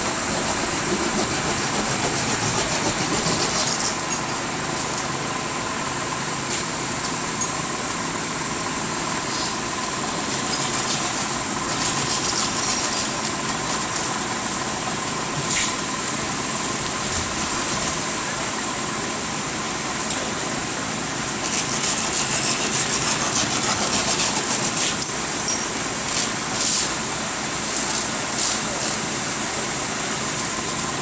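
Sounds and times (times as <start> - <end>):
engine idling: 0.0 - 31.0
sharp clink: 25.0 - 25.8.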